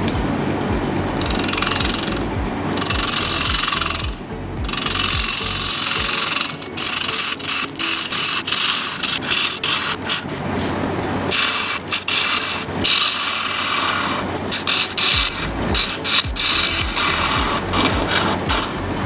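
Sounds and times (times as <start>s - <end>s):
bowl gouge scraping wood on lathe: 4.7s - 10.3s, 11.3s - 19.0s.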